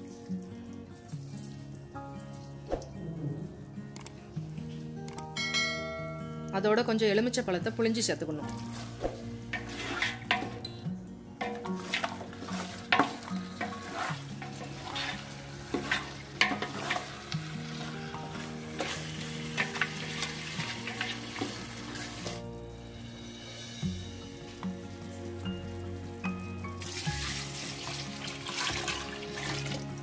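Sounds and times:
soft background music: 0.0 - 30.0
food sizzling: 8.4 - 30.0
spatula scraping metal pot: 8.6 - 10.8, 11.4 - 22.4.

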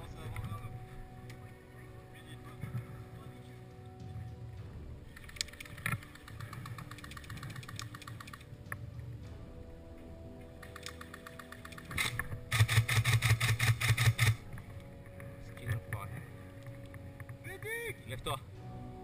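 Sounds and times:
airsoft rifles full-auto bursts: 10.6 - 14.4.

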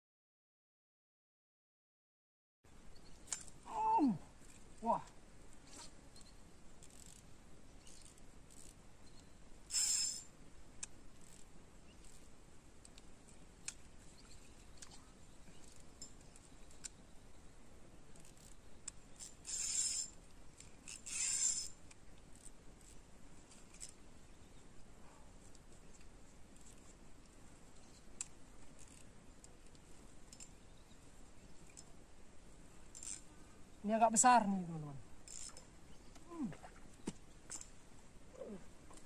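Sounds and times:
fishing reel cranking ticks: 6.8 - 7.2, 9.7 - 10.3, 19.2 - 21.8, 32.9 - 33.2, 35.3 - 35.6
line zipping off reel: 6.8 - 8.8, 9.7 - 10.4, 19.2 - 22.5, 32.9 - 33.3, 35.3 - 35.7.

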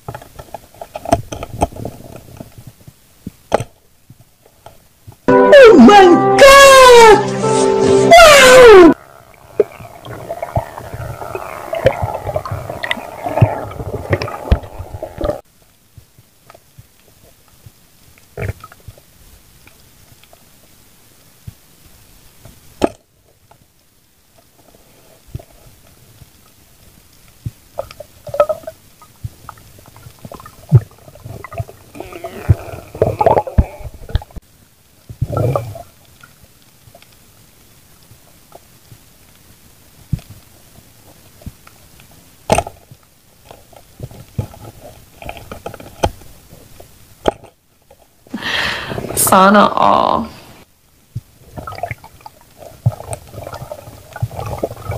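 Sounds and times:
gurgling underwater bubbles: 9.2 - 15.4, 51.5 - 54.9.

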